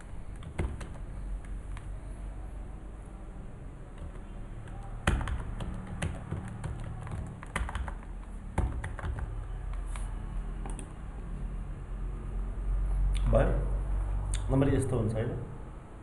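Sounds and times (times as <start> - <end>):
low steady hum: 0.0 - 16.0
keyboard typing: 0.2 - 2.0, 3.9 - 11.0.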